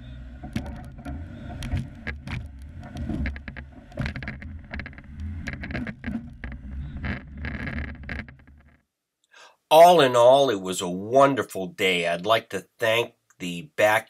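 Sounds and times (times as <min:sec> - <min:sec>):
engine rumbling at crawling speed: 0:00.0 - 0:07.4
knocks and rattles: 0:00.4 - 0:08.8.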